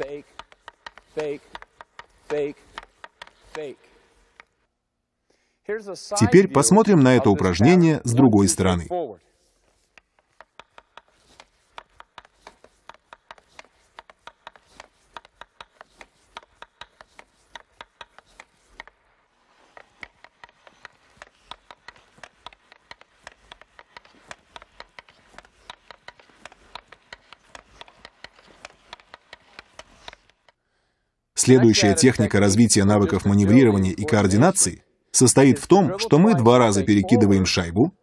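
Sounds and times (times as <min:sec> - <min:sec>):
hockey stick tapping puck on ice: 0:00.0 - 0:04.7, 0:09.5 - 0:30.6.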